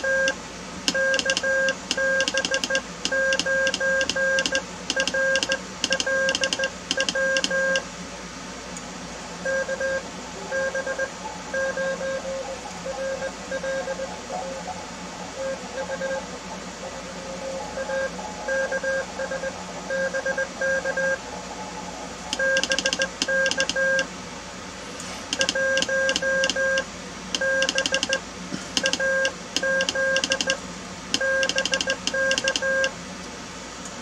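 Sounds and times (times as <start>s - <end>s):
morse code tone: 0.0s - 7.8s, 9.4s - 14.8s, 15.4s - 16.3s, 17.5s - 21.2s, 22.3s - 24.1s, 25.4s - 28.2s, 28.8s - 30.6s, 31.2s - 32.9s.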